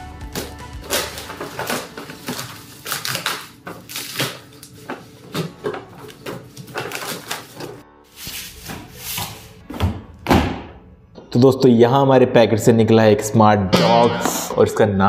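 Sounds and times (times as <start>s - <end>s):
paper and cardboard tearing: 0.3s - 9.6s
plastic packing crinkling: 0.4s - 7.8s.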